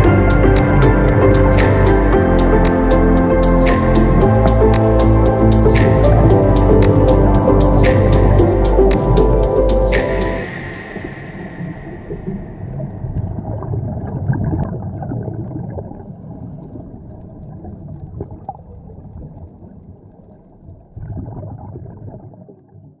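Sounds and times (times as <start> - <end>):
muffled bubbling water: 0.0 - 23.0.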